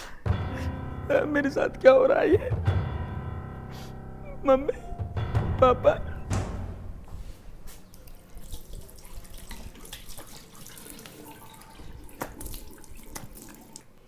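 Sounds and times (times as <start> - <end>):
tap water running into washbasin: 7.8 - 14.0
water splashes: 7.9 - 14.0.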